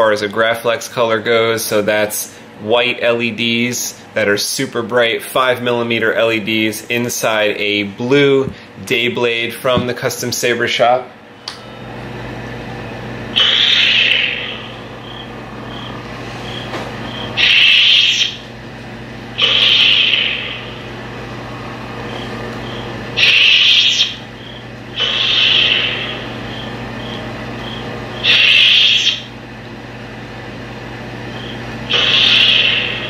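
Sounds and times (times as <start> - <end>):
lightsaber hum: 12.6 - 29.4, 31.2 - 33.0.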